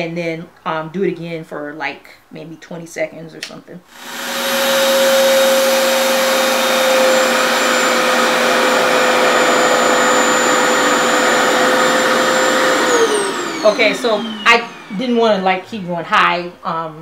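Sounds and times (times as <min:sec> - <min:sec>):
hair dryer running: 0:03.9 - 0:15.9.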